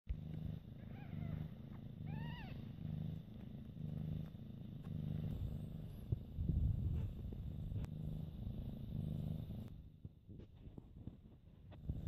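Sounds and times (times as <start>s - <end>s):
cat purring: 0.1s - 12.0s
kitten mewing: 2.1s - 2.6s.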